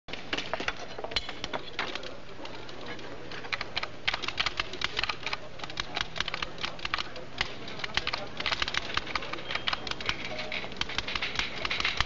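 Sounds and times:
typewriter keys clacking: 0:03.4 - 0:12.0.

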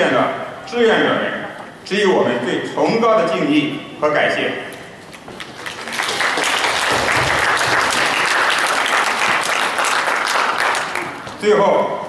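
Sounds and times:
audience applauding: 0:05.4 - 0:11.3.

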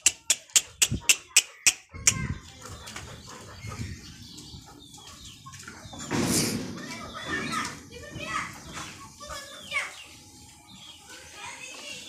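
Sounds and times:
shaker beat: 0:00.0 - 0:02.2
faint chickens clucking: 0:00.0 - 0:07.8, 0:08.5 - 0:12.0.

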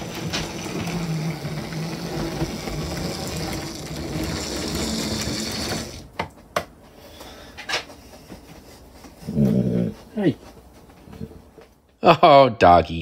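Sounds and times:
model train drive whirring: 0:00.0 - 0:06.1.

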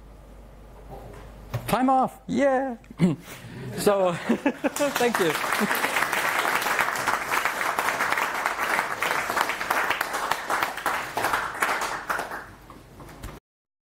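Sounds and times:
audience applauding: 0:04.4 - 0:12.6.

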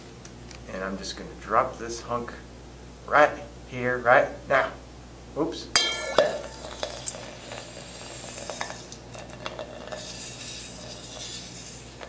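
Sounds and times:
metal fizzing and popping in water: 0:05.8 - 0:11.3.

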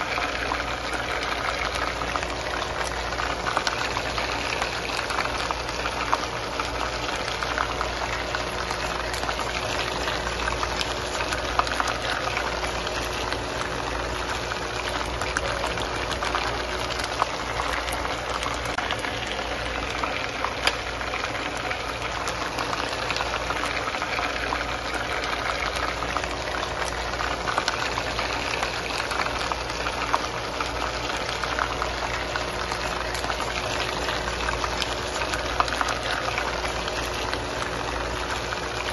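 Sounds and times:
chicken sizzling in oil: 0:00.0 - 0:38.9.

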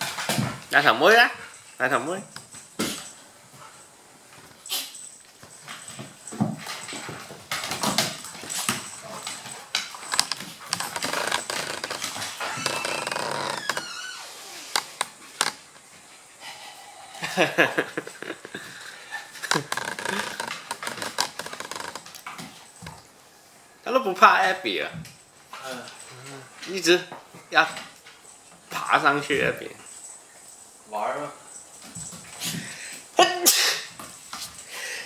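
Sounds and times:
claws clicking on wooden floor: 0:05.4 - 0:15.7, 0:19.4 - 0:23.0.

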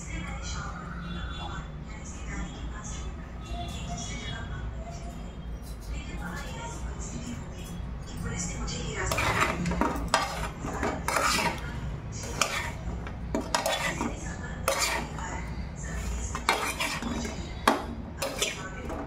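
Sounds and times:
metal fork scraping metal plate: 0:09.1 - 0:15.2, 0:16.0 - 0:17.4, 0:18.2 - 0:18.8.

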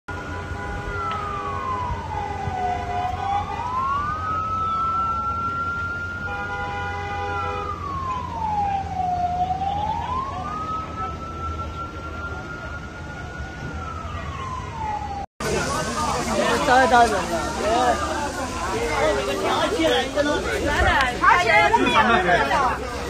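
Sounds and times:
emergency siren wailing: 0:00.1 - 0:23.0
road traffic rumble: 0:00.1 - 0:23.0.

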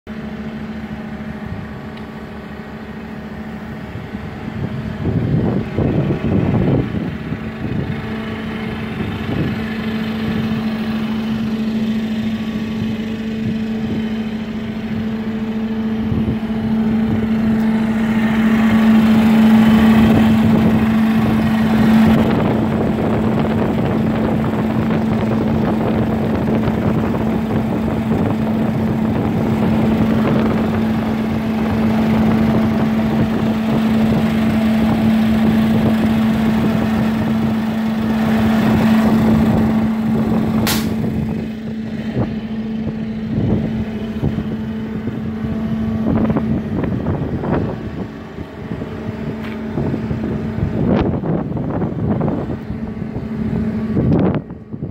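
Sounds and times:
diesel engine idling: 0:00.1 - 0:54.9.

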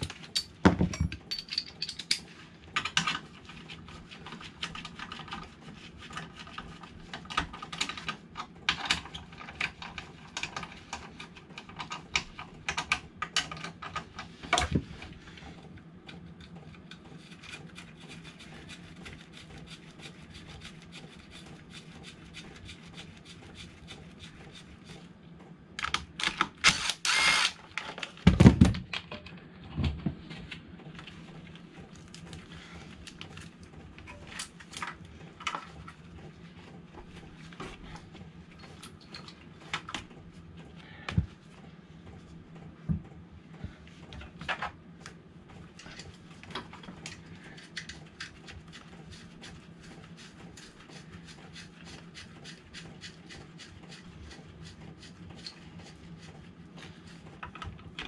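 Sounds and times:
tools and bolts clicking on metal: 0:00.0 - 0:03.2.

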